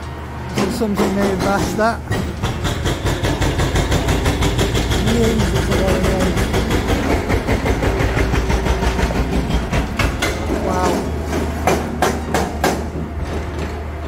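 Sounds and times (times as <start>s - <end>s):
excavator diesel engine drone: 0.0s - 12.0s
fast regular clatter: 0.6s - 10.6s.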